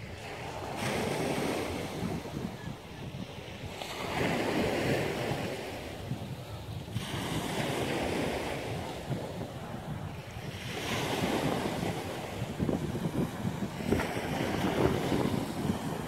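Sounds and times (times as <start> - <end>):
wind rumbling on microphone: 0.0 - 16.0
waves washing onto pebble beach: 3.4 - 16.0.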